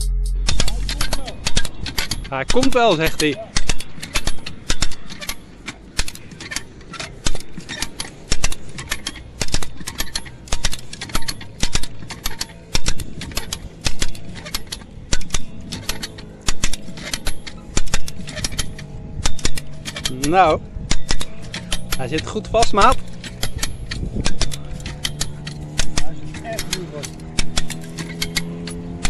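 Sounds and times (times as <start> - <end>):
winch ratchet clicking: 0.5 - 29.0.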